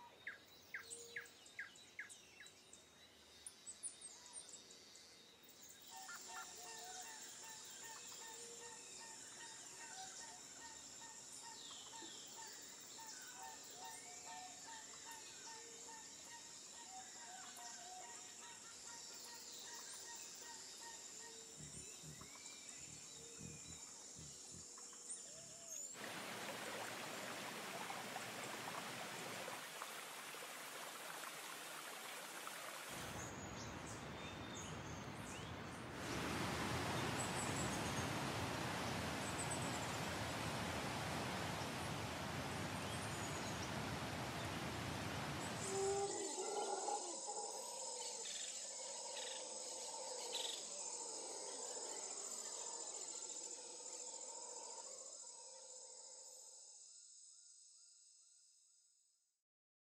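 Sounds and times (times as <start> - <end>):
high-pitched insect trill: 4.9 - 26.0.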